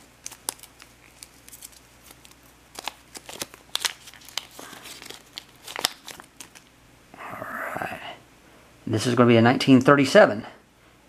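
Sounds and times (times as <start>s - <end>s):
light crinkling: 0.0s - 6.7s.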